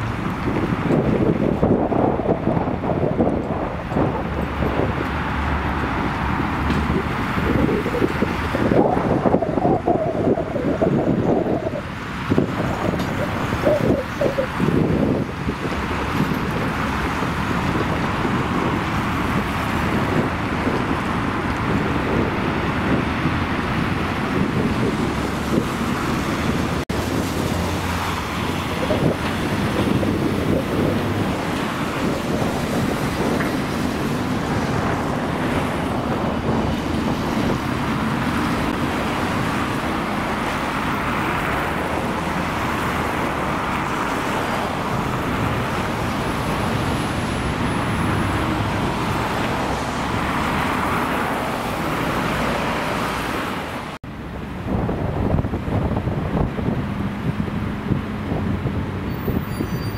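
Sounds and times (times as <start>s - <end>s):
tram running on rails: 0.0s - 14.6s, 15.3s - 52.8s
street traffic noise: 0.0s - 59.9s
wind on microphone: 0.0s - 59.9s.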